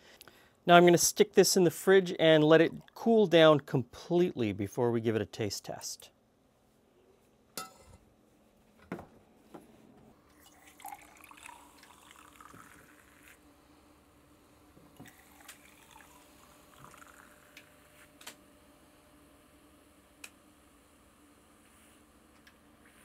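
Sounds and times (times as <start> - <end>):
carbonated water pouring and fizzing: 10.3 - 13.4, 15.0 - 17.6.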